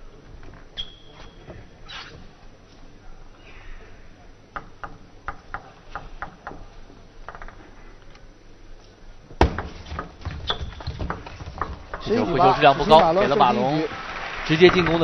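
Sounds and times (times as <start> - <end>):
table tennis ball rally: 9.4 - 15.0
people clapping: 12.6 - 15.0.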